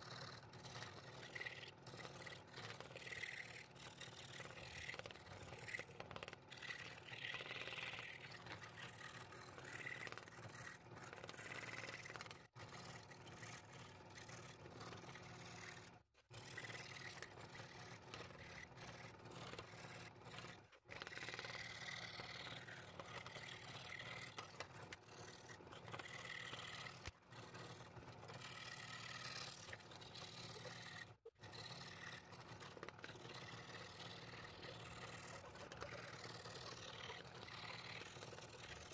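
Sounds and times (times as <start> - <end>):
scroll saw cutting wood: 0.0 - 38.9.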